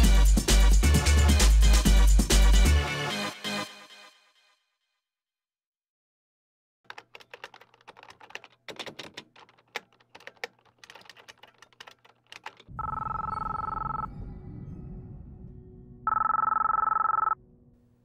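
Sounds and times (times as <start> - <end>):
fast keyboard typing: 6.9 - 14.0, 16.1 - 17.4
telephone ringing: 12.7 - 14.1, 16.1 - 17.4.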